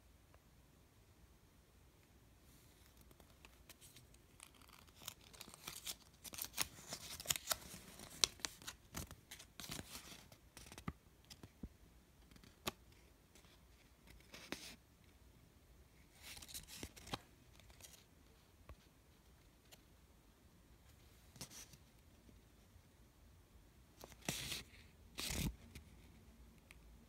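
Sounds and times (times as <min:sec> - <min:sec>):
paper crackling and rustling: 0:02.8 - 0:11.5.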